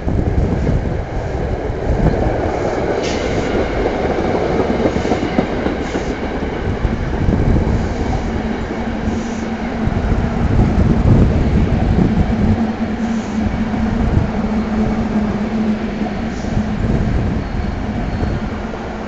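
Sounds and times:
train wheels clattering on rails: 0.0 - 19.0
wind rumbling on microphone: 0.0 - 19.0
steady hum: 7.2 - 19.0.

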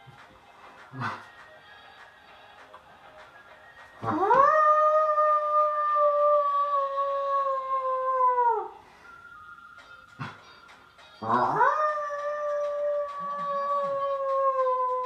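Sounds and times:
person imitating wolf howl: 4.0 - 8.8, 11.2 - 15.0.

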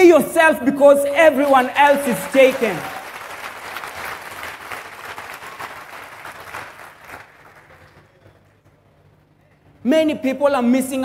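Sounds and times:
congregation applauding: 1.3 - 8.8.

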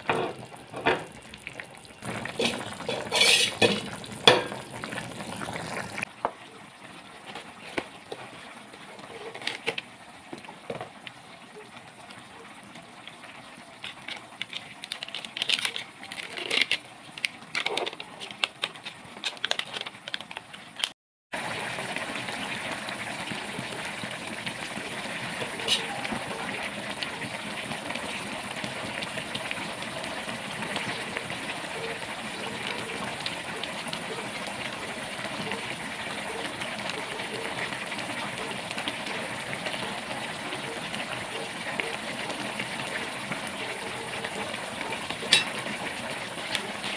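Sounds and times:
pot of broth boiling: 0.0 - 20.6, 21.4 - 46.9
plastic sachet crinkling: 13.8 - 20.9.

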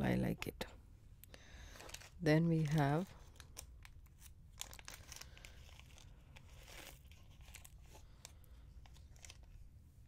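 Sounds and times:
plastic bag crinkling: 1.5 - 9.6.

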